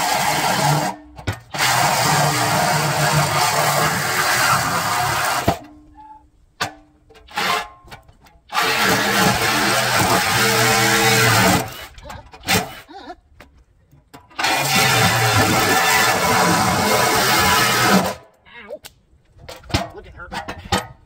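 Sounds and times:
reciprocating saw cutting steel: 0:00.0 - 0:06.1, 0:07.2 - 0:07.9, 0:08.5 - 0:13.0, 0:14.3 - 0:18.3.

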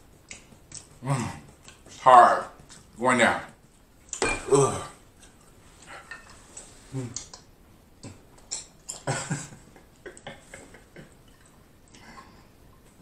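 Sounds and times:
man chewing and swallowing: 0:00.0 - 0:02.0, 0:03.9 - 0:13.0
small mouth clicks: 0:00.2 - 0:01.8, 0:07.1 - 0:08.8
man humming: 0:01.0 - 0:01.6, 0:04.4 - 0:05.0, 0:06.9 - 0:07.3.

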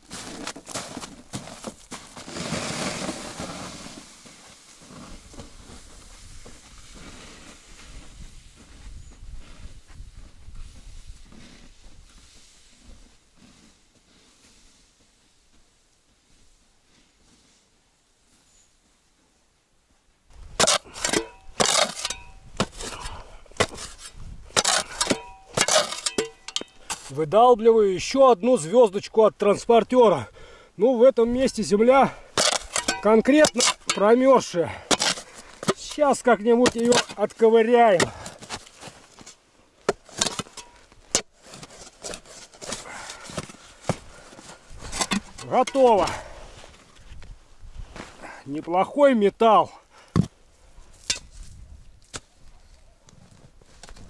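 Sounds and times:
sled scraping over snow: 0:00.0 - 0:15.3
footsteps crunching in snow: 0:00.0 - 0:17.7, 0:32.6 - 0:39.4, 0:40.0 - 0:48.4
shovel striking frozen ground: 0:00.1 - 0:04.1, 0:20.4 - 0:27.2, 0:32.1 - 0:46.3, 0:51.0 - 0:51.5
metallic ring: 0:21.1 - 0:22.5, 0:25.0 - 0:27.0.

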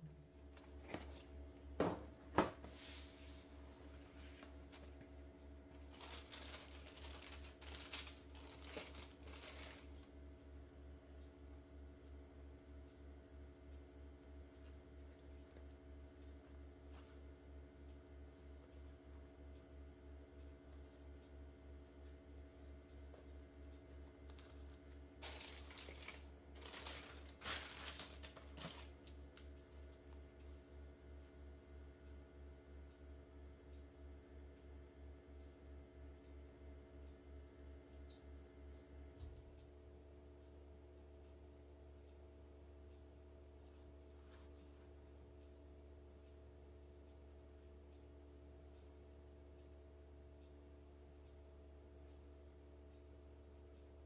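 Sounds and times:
cardboard and tissue paper rustling: 0:02.6 - 0:10.1, 0:24.3 - 0:29.2.

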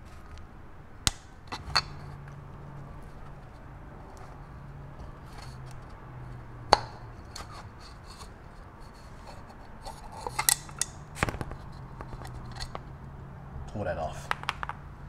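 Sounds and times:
metal pick scraping and clicking: 0:01.1 - 0:02.4, 0:05.0 - 0:11.0, 0:11.6 - 0:12.9.

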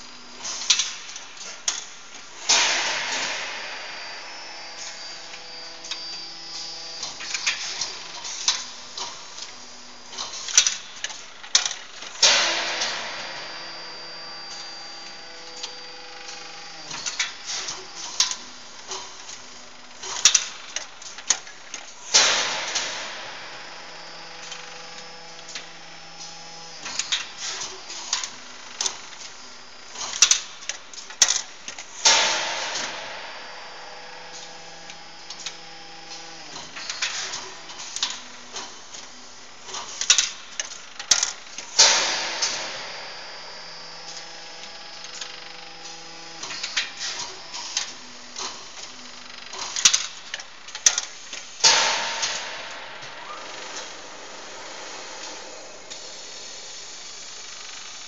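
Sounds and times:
hydraulic press humming: 0:00.0 - 0:58.0
metallic clicks and clanks: 0:39.7 - 0:42.8
loud hiss: 0:51.5 - 0:58.0.

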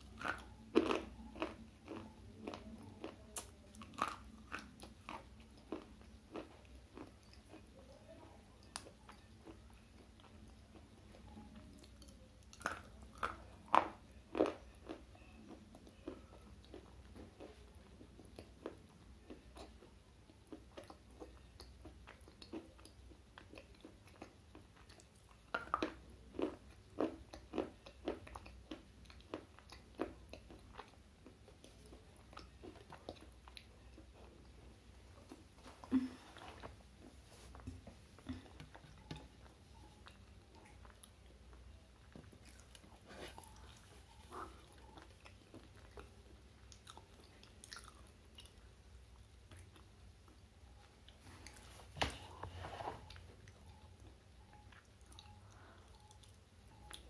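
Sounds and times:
gritty chewing: 0:00.0 - 0:07.7.

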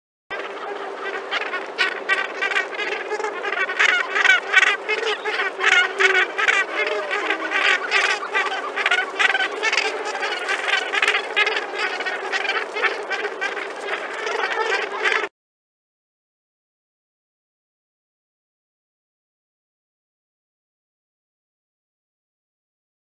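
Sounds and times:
gannet colony calling: 0:00.3 - 0:15.3.

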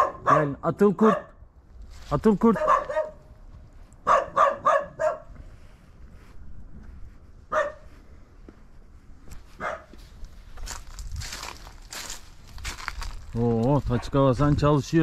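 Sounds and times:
dog barking: 0:00.0 - 0:01.4, 0:02.5 - 0:03.3, 0:04.0 - 0:05.4, 0:07.5 - 0:07.9, 0:09.6 - 0:10.0.

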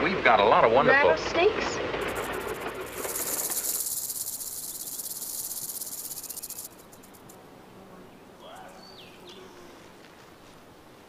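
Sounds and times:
rattlesnake rattling: 0:01.8 - 0:07.4.

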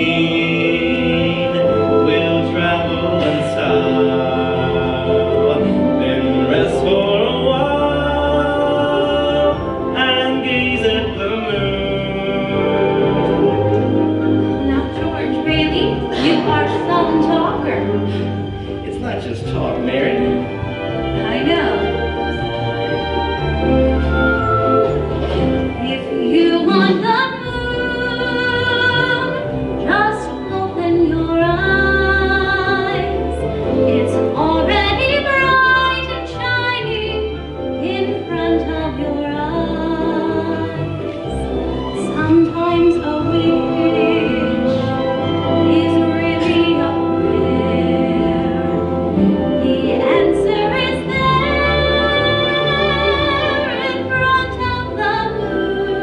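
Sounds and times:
instrumental accompaniment: 0:00.0 - 0:56.0
woman singing operatically: 0:25.8 - 0:41.0, 0:42.0 - 0:56.0.

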